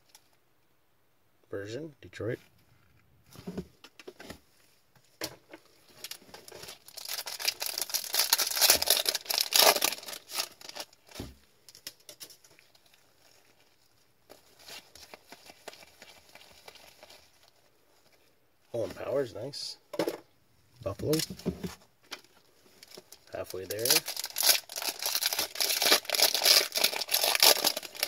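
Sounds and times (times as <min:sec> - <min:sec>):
foil pack tearing and crinkling: 0:06.0 - 0:13.6, 0:22.8 - 0:28.0
thump: 0:21.2 - 0:21.8.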